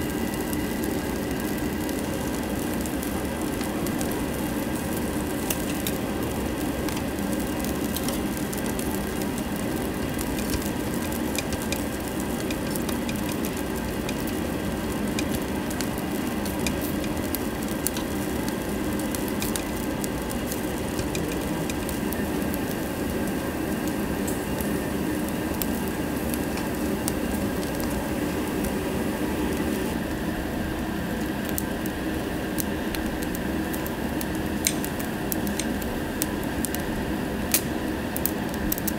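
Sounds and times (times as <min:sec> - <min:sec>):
fat crackling and popping: 0:00.0 - 0:30.3, 0:31.0 - 0:38.9
pork sizzling on a grill: 0:00.0 - 0:38.9
tongs tapping grill: 0:09.8 - 0:22.0.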